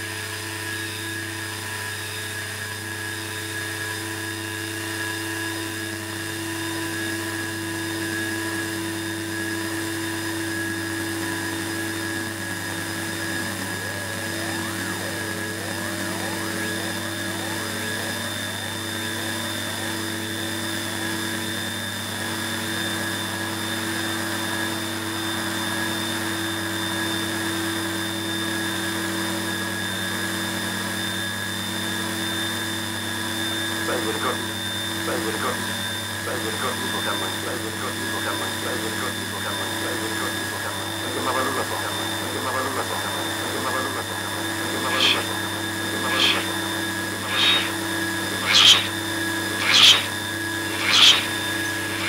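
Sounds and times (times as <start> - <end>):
held electronic tones: 36.8 - 52.0
wobbling sliding tones: 44.7 - 46.6, 47.2 - 48.9, 49.6 - 50.1, 50.7 - 52.0.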